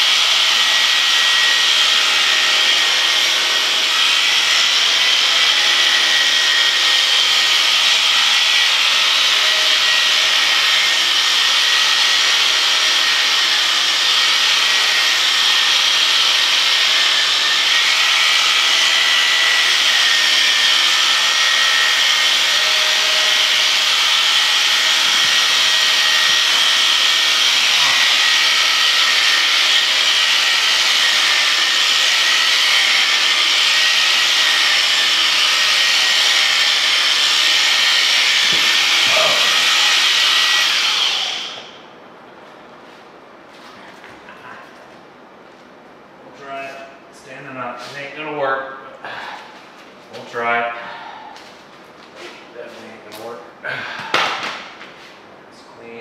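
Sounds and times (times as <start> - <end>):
electric shears buzzing: 0.0 - 41.8.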